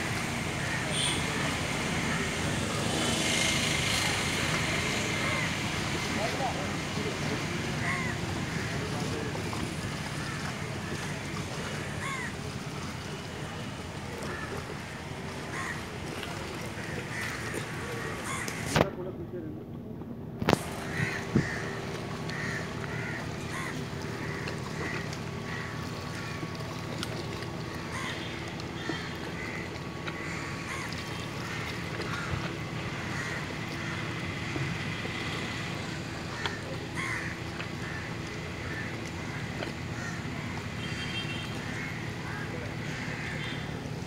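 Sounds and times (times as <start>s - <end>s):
low engine hum: 0.0s - 44.0s
crows cawing: 7.8s - 8.8s, 10.2s - 12.4s, 15.5s - 15.9s, 16.8s - 18.7s, 20.8s - 26.5s, 27.6s - 34.5s, 36.2s - 43.7s.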